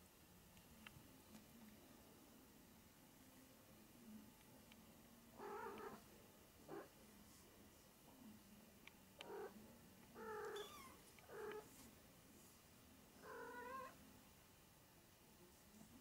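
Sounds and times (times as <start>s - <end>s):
cat mewing: 10.2s - 11.6s, 13.2s - 14.0s.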